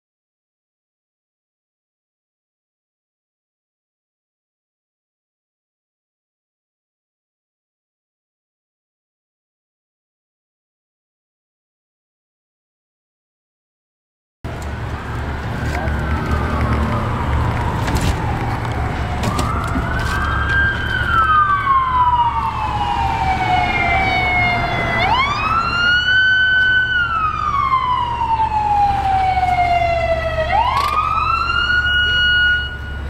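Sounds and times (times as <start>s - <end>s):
emergency siren wailing: 14.5s - 33.0s.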